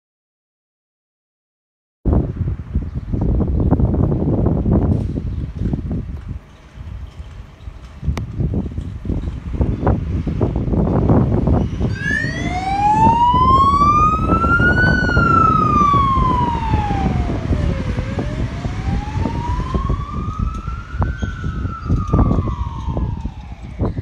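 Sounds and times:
electronic siren wailing: 11.8s - 24.0s.

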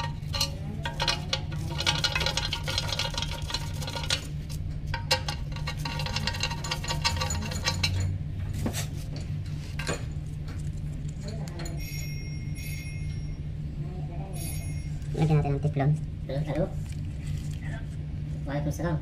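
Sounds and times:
small metal fittings clinking: 0.0s - 4.3s, 4.9s - 8.1s
steady low hum: 0.0s - 19.0s.

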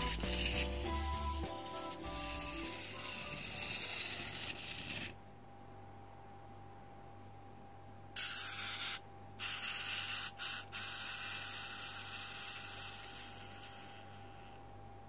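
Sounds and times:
spring motor and gears whirring: 0.0s - 5.2s, 8.2s - 14.6s.

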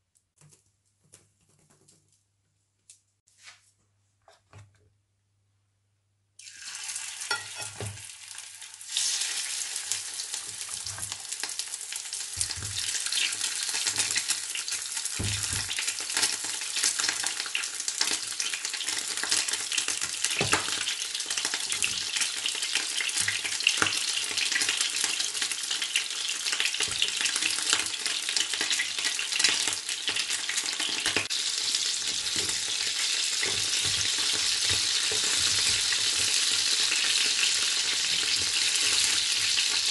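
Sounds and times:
food frying in hot oil: 6.4s - 39.9s.

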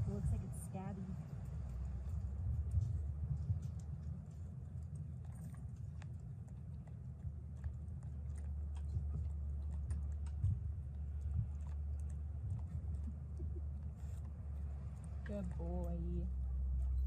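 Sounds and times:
steady low rumble: 0.0s - 17.0s
dog licking and chewing: 1.9s - 16.4s
wet clicks and smacks: 2.8s - 16.0s.

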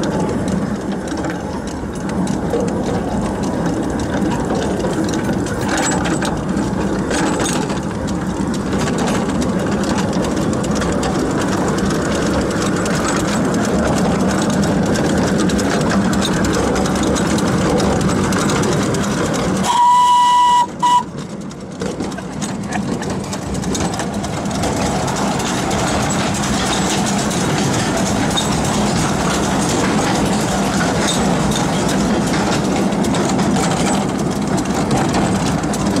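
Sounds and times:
steam locomotive rumbling clatter: 0.0s - 36.0s
steam whistle: 19.6s - 21.1s.

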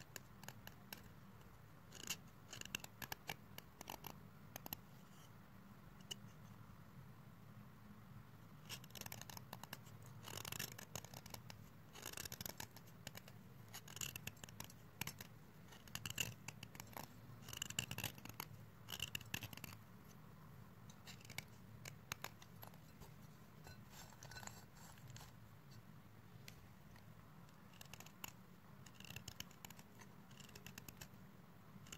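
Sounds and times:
blade scraping chalk: 1.9s - 5.3s, 8.6s - 20.2s, 20.9s - 25.4s, 26.5s - 31.2s.

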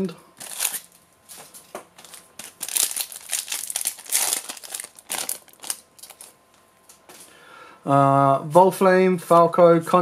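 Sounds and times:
foil wrapper crinkling: 0.4s - 6.4s.

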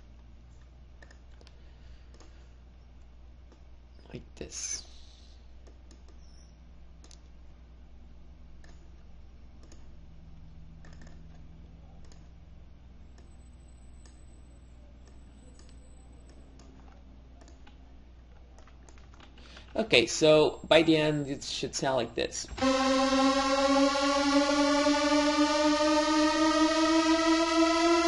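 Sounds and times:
faint low hum: 0.0s - 28.0s
computer mouse clicking: 1.0s - 2.4s, 7.0s - 7.3s, 9.6s - 9.9s, 10.8s - 11.4s, 12.0s - 12.3s, 15.0s - 19.7s.

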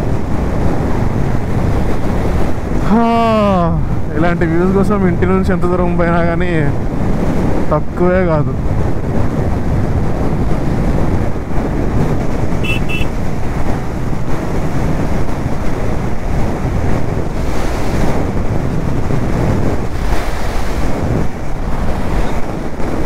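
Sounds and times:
wind buffeting microphone: 0.0s - 23.0s
short high beeps: 12.6s - 13.1s.

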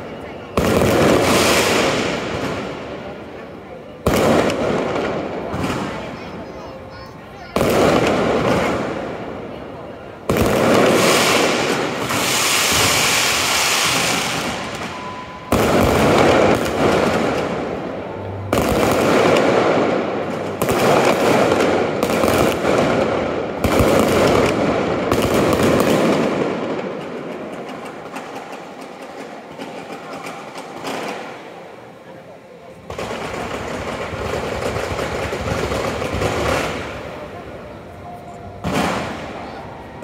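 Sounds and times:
firework shells booming: 0.5s - 3.4s, 4.0s - 6.6s, 7.4s - 9.4s, 10.2s - 31.6s, 32.9s - 37.6s, 38.6s - 39.4s
firework crackling hiss: 0.6s - 3.2s, 10.3s - 17.9s.

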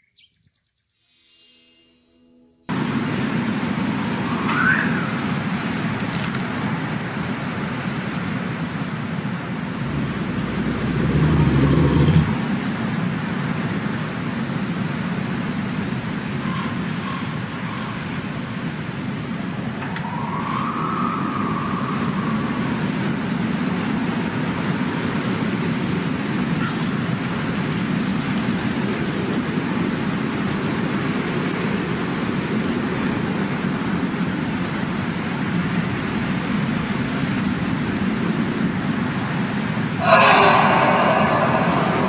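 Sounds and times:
low rumbling noise: 2.7s - 14.0s, 19.6s - 24.3s, 40.0s - 42.0s
faint thin tone: 40.0s - 42.0s.

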